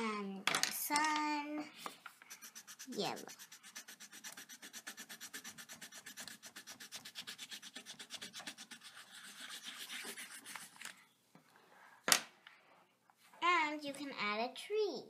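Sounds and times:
crayon scribbling on paper: 0:02.2 - 0:10.8.

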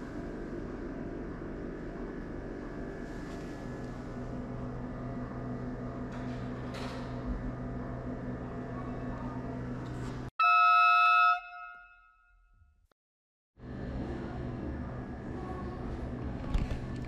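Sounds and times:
loud electronic tone: 0:10.4 - 0:12.1.

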